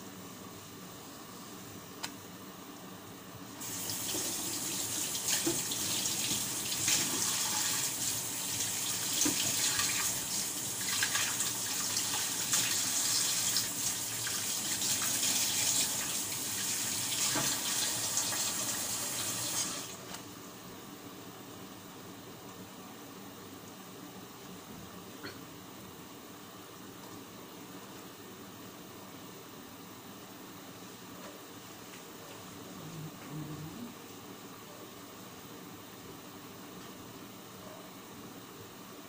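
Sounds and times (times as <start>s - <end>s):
water running into sink: 3.6s - 20.0s.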